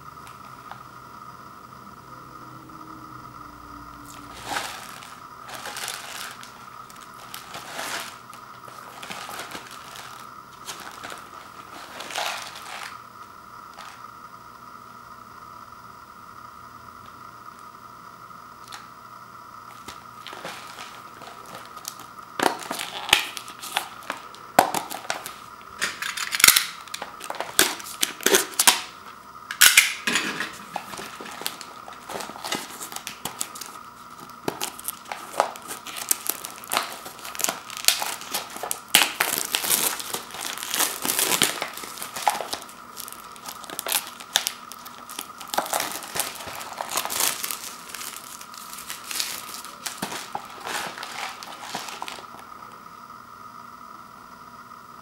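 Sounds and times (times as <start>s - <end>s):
plastic wrapper crinkling: 4.1s - 13.0s, 19.7s - 29.0s, 29.6s - 52.5s.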